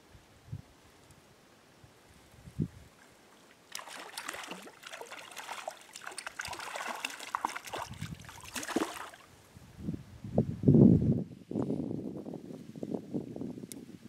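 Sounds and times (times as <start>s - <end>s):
stream water splashing: 3.0s - 9.3s.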